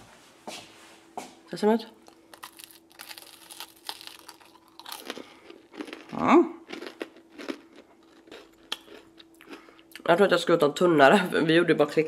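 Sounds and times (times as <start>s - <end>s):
cookie crunching: 2.0s - 10.1s.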